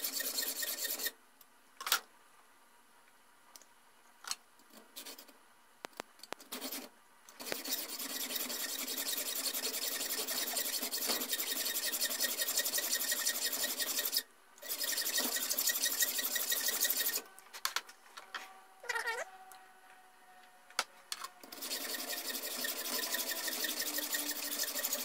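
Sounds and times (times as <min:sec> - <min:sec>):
hacksaw sawing steel: 0:00.0 - 0:01.1, 0:07.4 - 0:17.2, 0:21.4 - 0:25.0.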